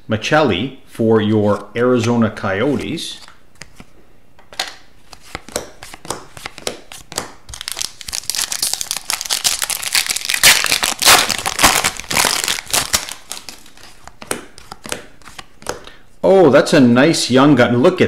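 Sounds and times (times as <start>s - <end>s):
cards clicking while handled: 4.6s - 8.6s
foil pack tearing and crinkling: 7.5s - 13.9s.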